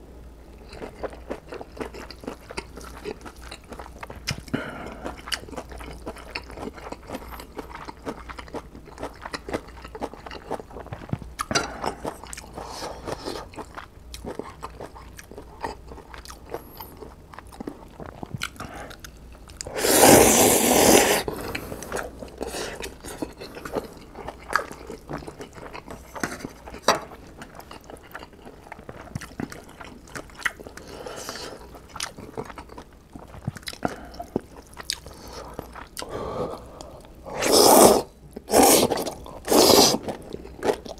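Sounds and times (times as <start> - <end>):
noodle slurp: 19.6 - 21.3, 37.3 - 40.1
wet chewing and mouth smacks: 21.8 - 30.9, 31.6 - 36.1.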